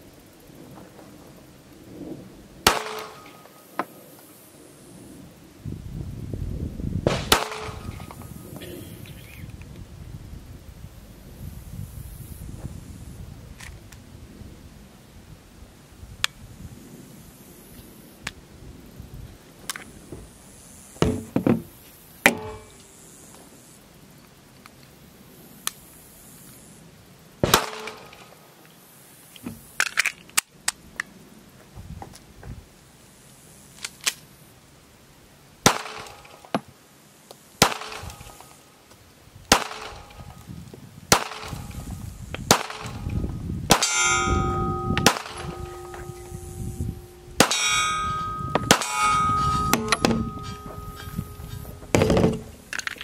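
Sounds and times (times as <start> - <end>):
pistol shots: 2.7 - 3.4, 7.1 - 8.2, 27.4 - 28.3, 35.6 - 36.4, 37.6 - 38.5, 39.5 - 40.4, 41.1 - 41.9, 42.5 - 46.8, 47.4 - 51.1
metallic ringing: 22.3 - 22.9, 43.7 - 52.7.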